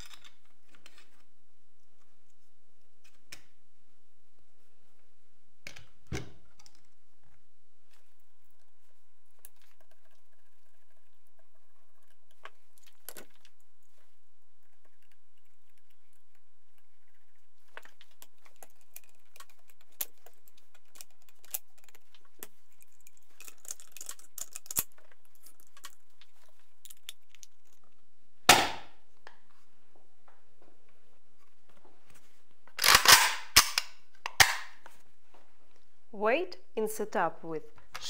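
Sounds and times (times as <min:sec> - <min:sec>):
small metal clicks and rattles: 0:17.7 - 0:26.0.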